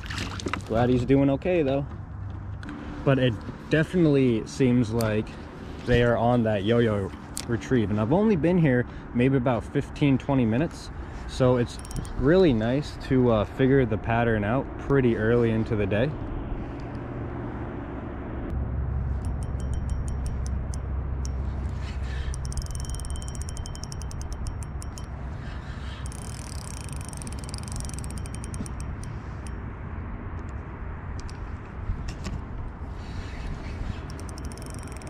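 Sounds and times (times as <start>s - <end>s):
steady low rumble: 9.8s - 35.0s
fishing reel ticking and whirring: 11.6s - 12.4s, 19.2s - 29.6s, 33.9s - 35.0s.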